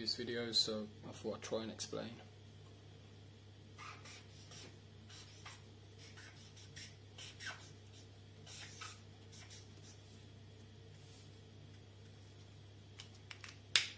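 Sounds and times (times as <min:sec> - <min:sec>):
steady low hum: 0:00.0 - 0:13.9
marker nib rubbing paper: 0:03.8 - 0:10.2.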